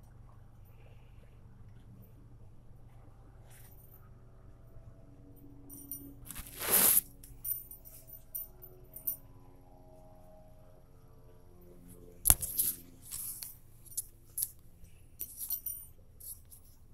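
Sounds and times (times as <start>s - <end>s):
short rustles: 6.3s - 7.1s.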